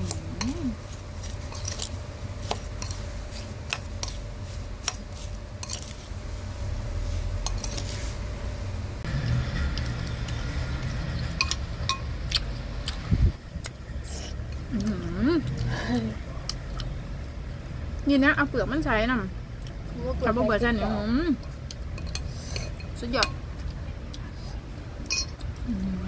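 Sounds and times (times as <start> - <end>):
low steady rumble: 0.0 - 26.0
spoon clinking in ceramic bowl: 25.1 - 25.4.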